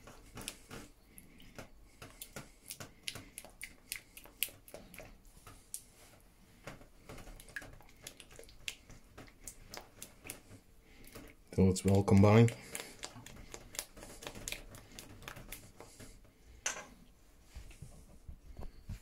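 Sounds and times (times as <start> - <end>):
utensil stirring thick milk in bowl: 7.0 - 16.3.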